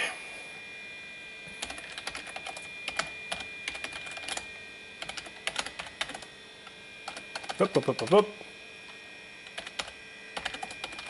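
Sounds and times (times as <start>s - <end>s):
computer keyboard typing: 1.6s - 6.3s, 7.0s - 8.2s, 9.4s - 11.0s.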